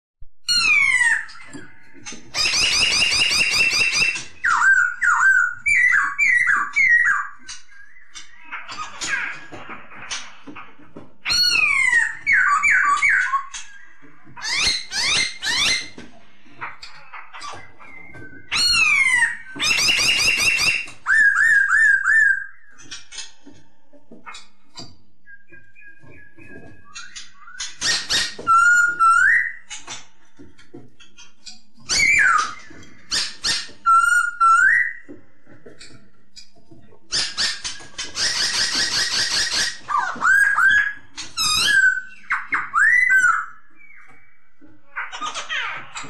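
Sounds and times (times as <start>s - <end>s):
bird singing whistles and trills: 0.5s - 9.4s, 11.2s - 16.0s, 16.9s - 23.2s, 25.2s - 29.8s, 31.5s - 35.1s, 37.1s - 44.6s
bird singing whistled phrases: 17.7s - 22.6s, 25.3s - 29.6s, 38.2s - 44.4s.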